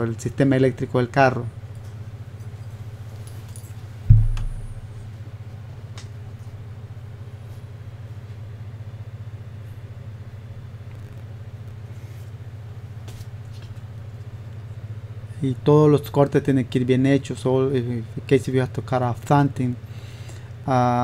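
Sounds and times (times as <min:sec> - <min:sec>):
steady low hum: 0:00.0 - 0:21.0
loud dull thump: 0:04.1 - 0:05.0.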